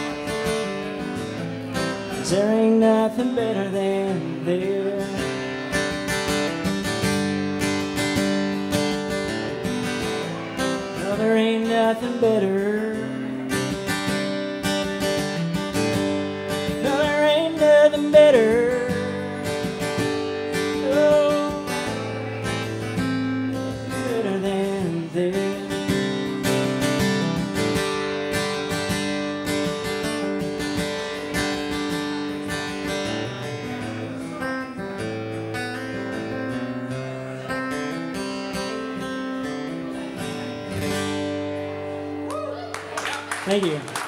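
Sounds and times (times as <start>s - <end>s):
acoustic guitar strummed: 0.0s - 43.9s
person singing wordless melody: 20.7s - 22.0s.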